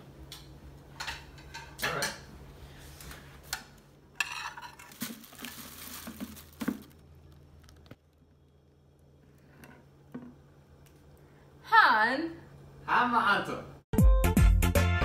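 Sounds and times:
spoon scraping a plate: 4.2s - 4.9s.

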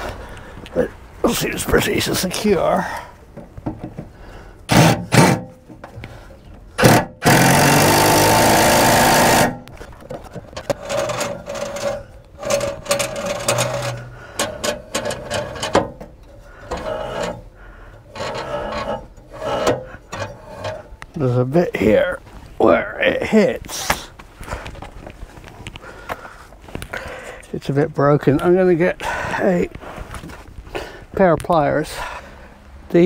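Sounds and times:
impact driver hammering: 4.7s - 5.5s, 6.8s - 9.7s
light metal knocks and scrapes: 9.6s - 22.0s.

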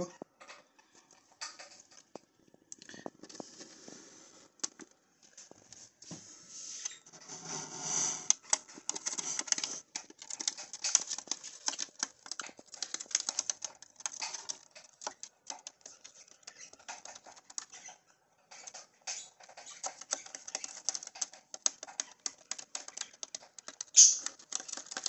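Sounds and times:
bird claws tapping on wood: 19.5s - 25.0s.

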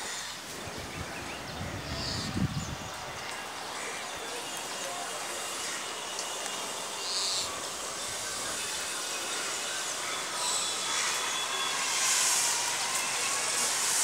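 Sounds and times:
outdoor background hiss: 0.0s - 14.0s.

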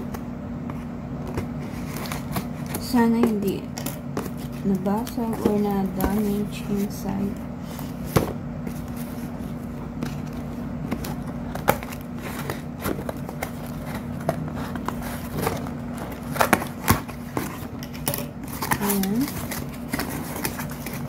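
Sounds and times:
scissors cutting packing tape: 14.8s - 21.0s.

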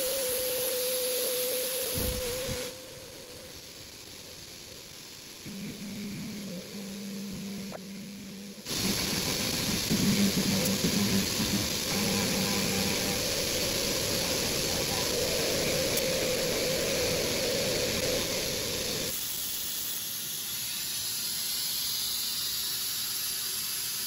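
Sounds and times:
constant hiss: 0.0s - 24.0s
milling machine cutting wood: 5.5s - 19.1s.

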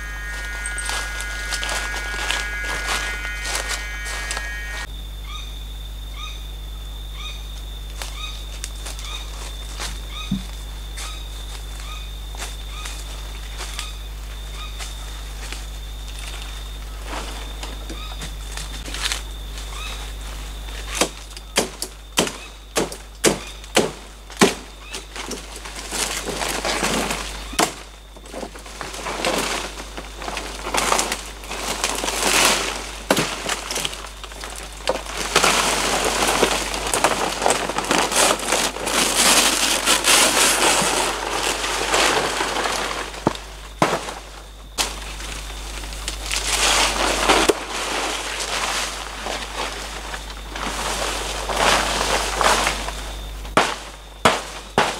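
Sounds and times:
leaves rustling and crackling: 0.0s - 4.9s, 7.8s - 21.2s, 23.4s - 54.9s
palm fronds cracking: 0.0s - 4.9s, 20.8s - 54.9s.

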